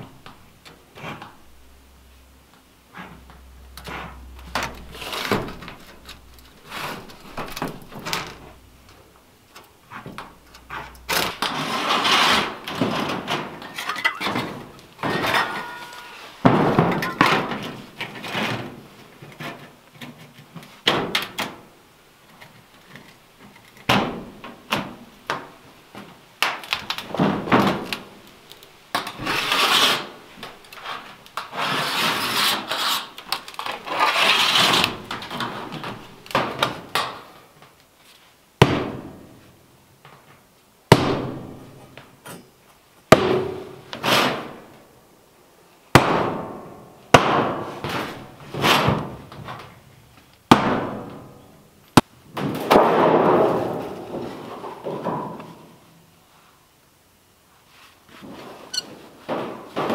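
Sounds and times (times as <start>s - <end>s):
wood scraping: 2.9s - 20.9s, 26.7s - 36.6s.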